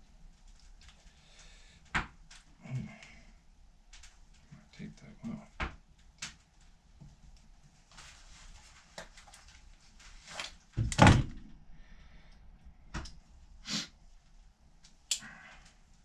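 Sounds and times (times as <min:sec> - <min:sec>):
light clicks of small parts: 0:00.3 - 0:03.2, 0:03.9 - 0:07.7.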